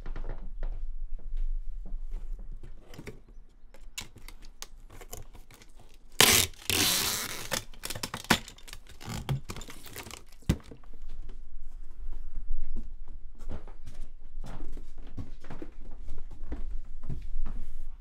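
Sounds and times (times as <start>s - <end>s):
tape dispenser clicks: 3.8s - 10.7s
packing tape ripping: 3.9s - 10.7s.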